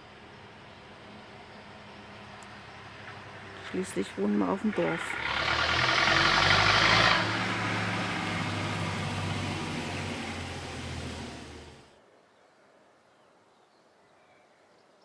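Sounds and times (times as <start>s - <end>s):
tractor engine running: 0.0s - 11.9s.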